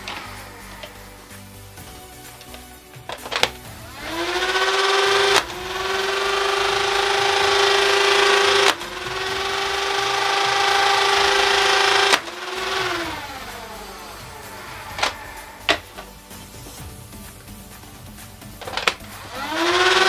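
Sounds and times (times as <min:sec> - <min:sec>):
electric flywheels whining: 0:00.0 - 0:20.0
toy darts firing: 0:02.4 - 0:16.1, 0:18.6 - 0:20.0.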